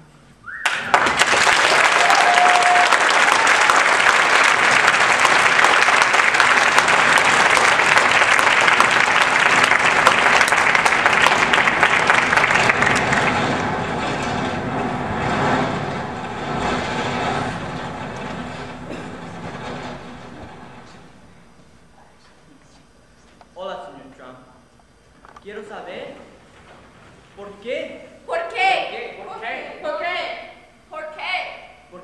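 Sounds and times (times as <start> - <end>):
audience applauding: 0.6 - 14.7.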